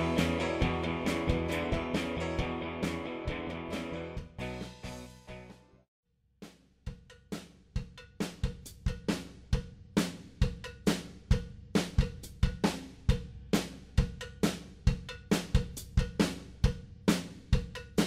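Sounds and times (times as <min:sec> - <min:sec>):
drum kit beat: 0:00.0 - 0:05.4, 0:06.4 - 0:18.0
rock backing music: 0:00.0 - 0:05.8.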